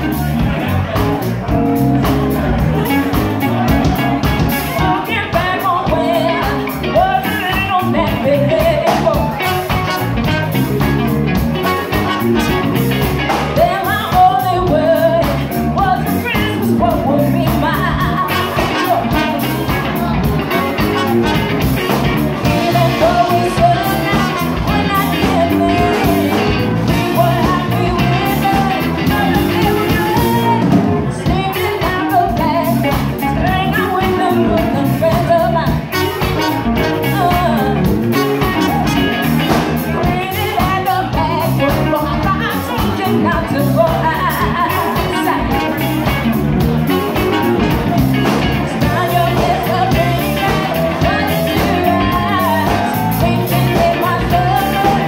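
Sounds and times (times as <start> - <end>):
drum kit: 0.0 - 55.0
saxophone: 0.1 - 14.1, 14.8 - 55.0
woman singing into a microphone: 4.7 - 9.7, 13.4 - 19.7, 22.4 - 55.0
trumpet: 9.4 - 10.9, 11.6 - 13.1, 18.3 - 19.9, 20.5 - 27.4, 35.8 - 37.2, 38.0 - 39.5, 45.0 - 46.2.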